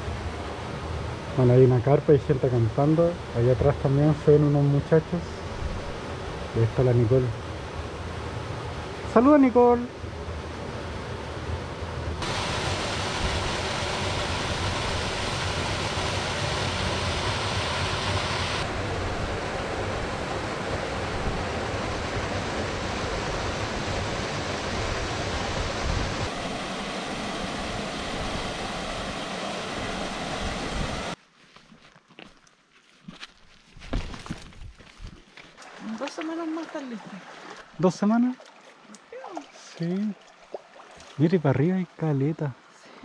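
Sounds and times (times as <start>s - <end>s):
mountain stream and waterfall rushing: 12.2s - 31.2s.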